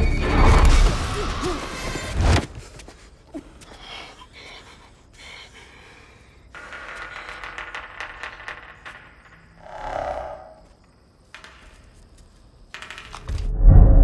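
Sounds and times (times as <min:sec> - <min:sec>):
woman breathing faintly: 0:02.6 - 0:07.5
deep rumbling film soundtrack: 0:12.7 - 0:14.0.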